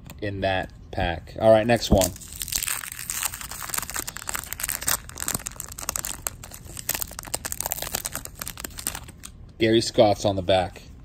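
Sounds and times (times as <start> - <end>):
paper wrapper tearing and crinkling: 2.0 - 9.3.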